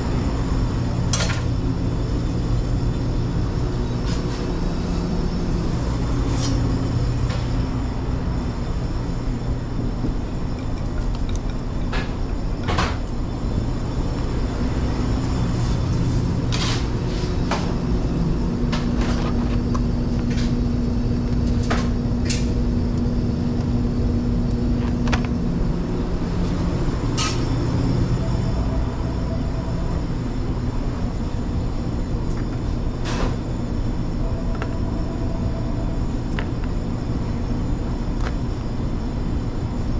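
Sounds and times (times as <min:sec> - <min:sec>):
kitchen equipment humming: 0:00.0 - 0:39.9.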